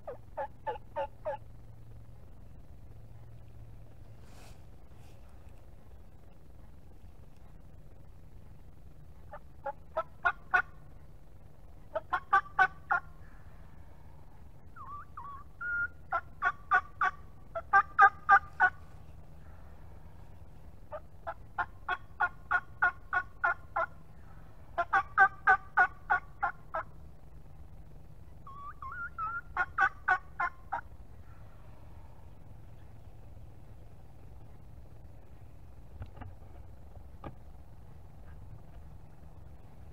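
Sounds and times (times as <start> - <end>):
turkey yelping: 0.0 - 1.5, 9.2 - 10.8, 11.9 - 13.9, 14.6 - 19.7, 20.9 - 27.0, 28.4 - 31.6.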